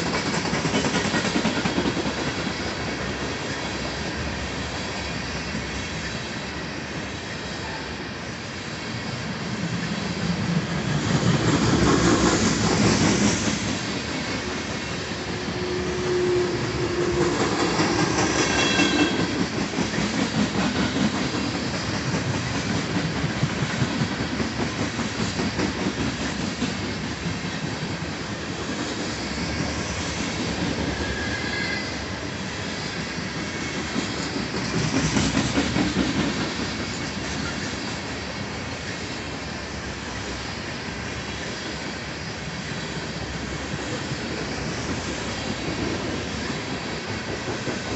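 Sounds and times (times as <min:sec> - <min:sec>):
train wheels rumbling and clattering: 0:00.0 - 0:47.9
high-pitched wheel squeals: 0:18.4 - 0:19.4, 0:30.9 - 0:32.0.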